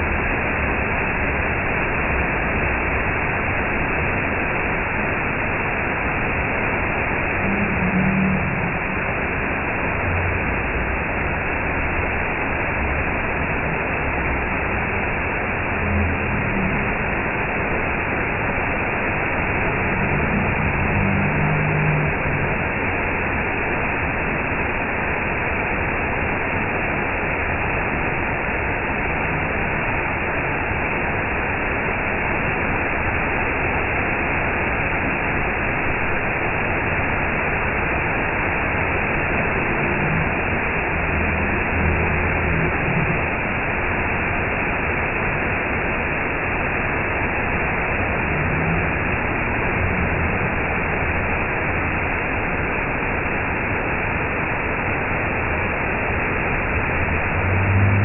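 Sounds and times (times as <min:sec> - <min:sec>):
waterfall rushing: 0:05.5 - 0:24.9, 0:35.2 - 0:58.0.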